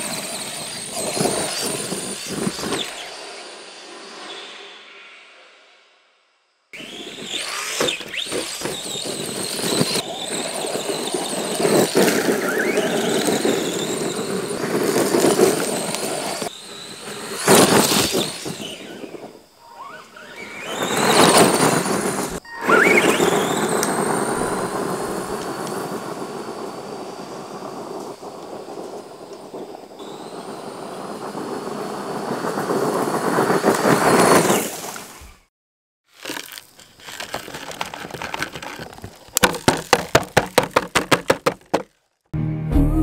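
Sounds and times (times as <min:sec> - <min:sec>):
electric motor whine: 0:00.0 - 0:04.2, 0:06.8 - 0:28.1, 0:30.0 - 0:31.7
tyres crunching on gravel: 0:06.8 - 0:16.6, 0:36.1 - 0:42.2.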